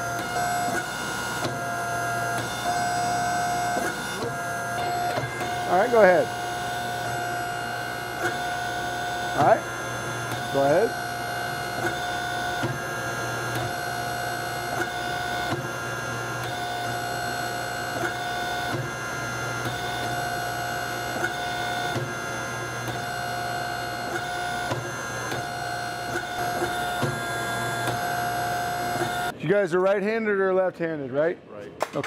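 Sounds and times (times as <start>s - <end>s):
power hammer machine hum: 0.0s - 29.4s.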